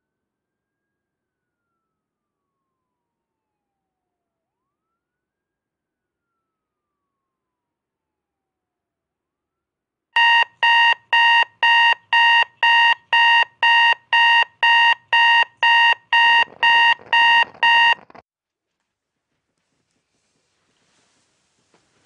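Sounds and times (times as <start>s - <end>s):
alarm clock beeping: 10.2s - 18.2s.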